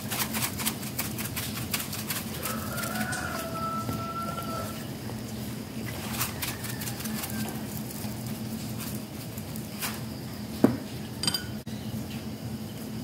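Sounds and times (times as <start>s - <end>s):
steady low hum: 0.0s - 13.0s
metallic clink: 11.2s - 11.6s.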